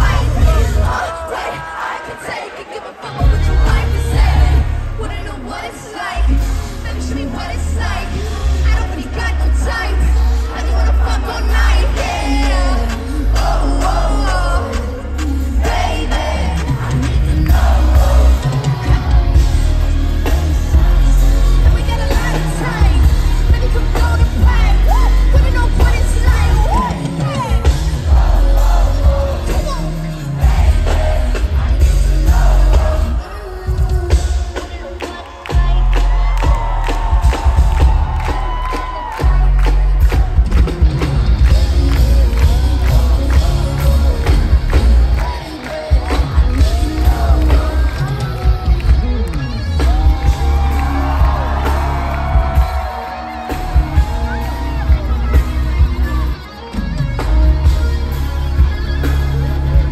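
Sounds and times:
live concert music with bass: 0.0s - 59.9s
person singing: 0.0s - 59.9s.

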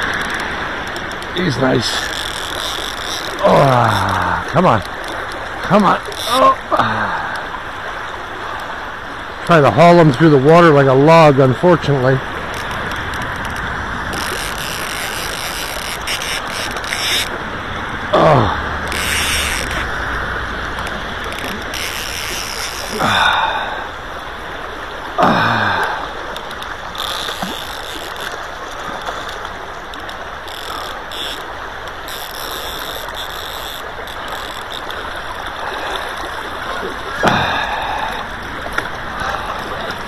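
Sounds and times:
river current rushing: 0.0s - 40.0s
water splashing: 0.0s - 40.0s
sliding downward sounds: 18.1s - 23.1s.

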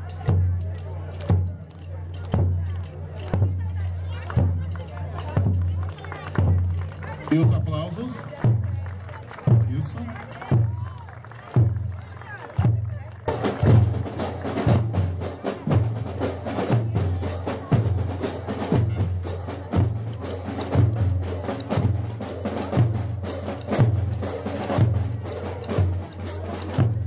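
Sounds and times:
sharp clicking drum strokes: 13.3s - 27.0s.

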